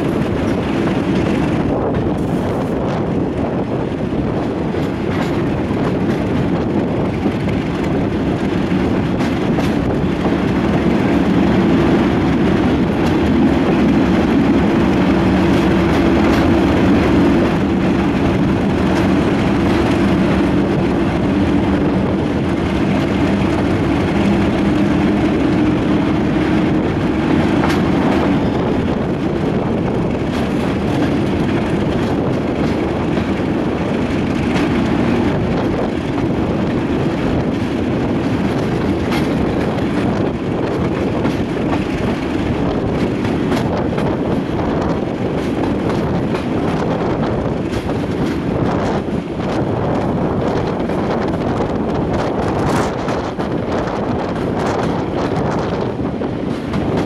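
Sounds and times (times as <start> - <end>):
diesel locomotive engine: 0.0 - 57.0
rushing air: 0.0 - 57.0
wheels clicking over rails: 0.0 - 57.0.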